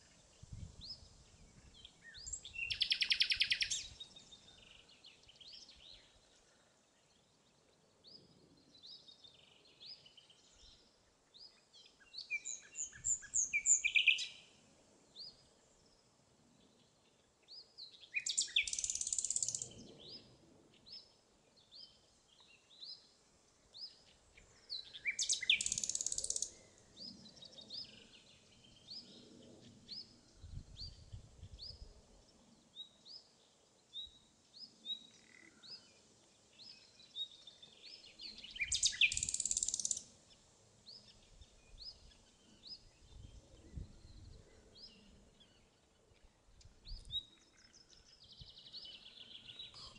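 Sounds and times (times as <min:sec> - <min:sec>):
nightingale singing: 0:00.4 - 0:06.2, 0:11.5 - 0:14.5, 0:17.8 - 0:20.3, 0:23.8 - 0:29.2, 0:33.9 - 0:40.1.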